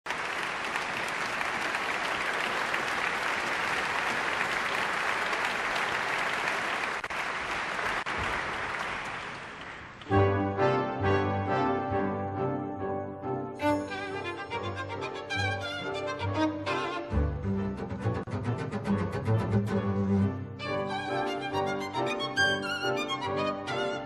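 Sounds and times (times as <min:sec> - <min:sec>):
audience applauding: 0:00.0 - 0:10.4
symphony orchestra music: 0:10.0 - 0:24.0.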